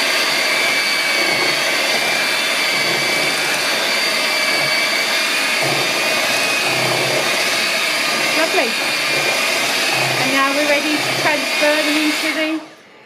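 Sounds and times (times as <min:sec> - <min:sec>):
electric mixer whisking batter: 0:00.0 - 0:12.8.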